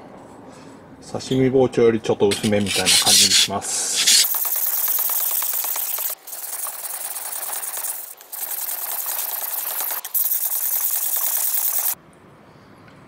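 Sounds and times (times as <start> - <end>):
knife scraping on whetstone: 2.3 - 8.0.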